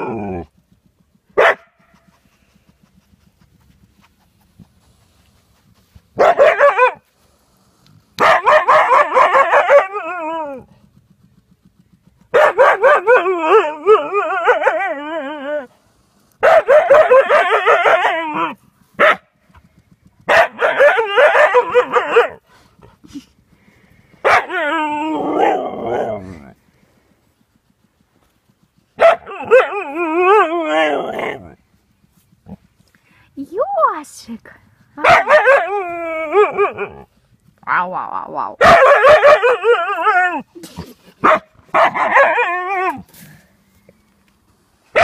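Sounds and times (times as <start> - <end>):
dog yipping: 1.4 - 2.1, 6.2 - 7.0, 28.9 - 30.5, 35.0 - 37.1, 38.6 - 40.5, 41.2 - 43.0.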